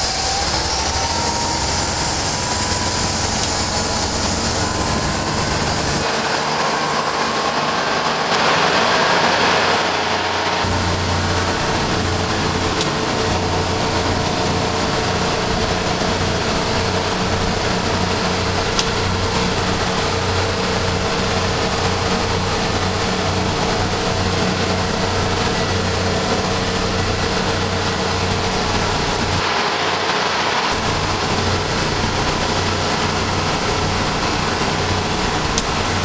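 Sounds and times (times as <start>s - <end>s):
boat engine drone: 0.0s - 36.0s
rush of water and wind: 0.0s - 36.0s.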